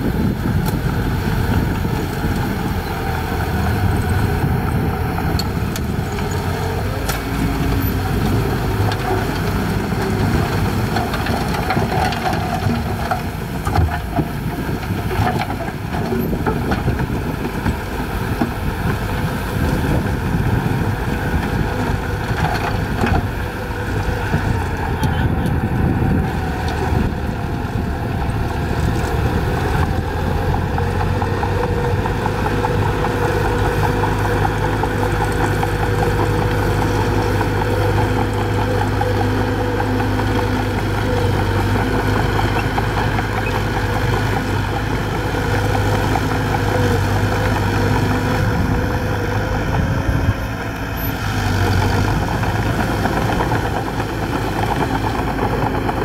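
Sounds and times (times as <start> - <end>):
bulldozer diesel engine under load: 0.0 - 56.0
blade pushing dirt and rock: 0.1 - 56.0.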